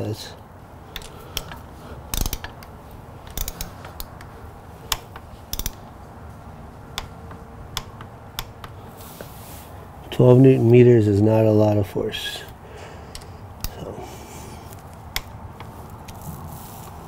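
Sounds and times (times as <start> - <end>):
socket wrench ratchet clicking: 0.9 - 4.3, 4.9 - 6.0, 6.9 - 8.8, 14.7 - 16.2.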